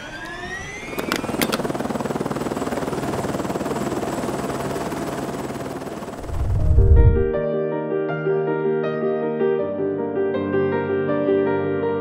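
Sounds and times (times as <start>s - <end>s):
drone propellers whining: 0.0s - 3.9s, 6.1s - 7.4s.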